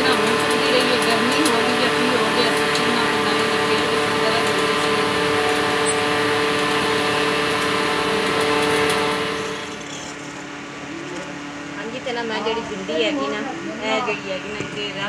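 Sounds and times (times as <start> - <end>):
machine drone with hiss: 0.0 - 12.0.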